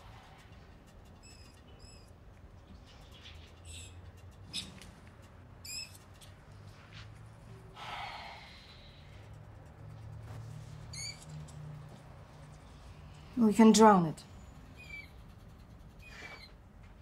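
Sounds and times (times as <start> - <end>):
rat squeaking: 0.0 - 6.4, 10.6 - 12.8, 14.3 - 16.7
soft breathy rush: 7.5 - 9.4.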